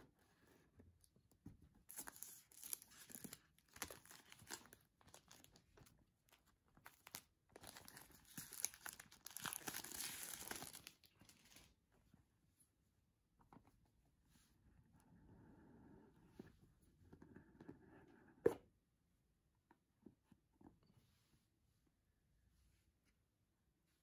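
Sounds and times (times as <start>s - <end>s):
plastic wrap crinkling and tearing: 1.9s - 5.6s, 6.8s - 11.7s.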